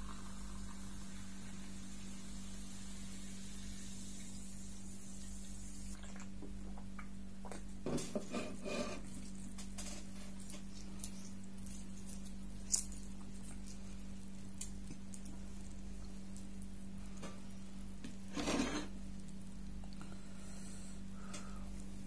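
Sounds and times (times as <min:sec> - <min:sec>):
steady low hum: 0:00.0 - 0:22.0
fingers squelching in food: 0:09.1 - 0:16.7.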